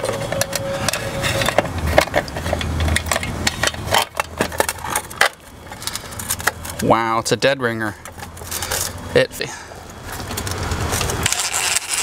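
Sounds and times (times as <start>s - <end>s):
wires scraping through holes: 0.0s - 7.0s, 10.0s - 12.0s.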